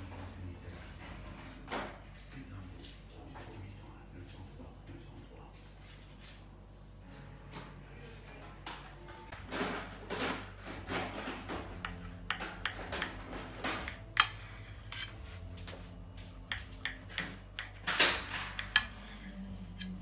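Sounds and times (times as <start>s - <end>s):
knife scraping through flan: 13.9s - 15.4s, 18.5s - 20.0s.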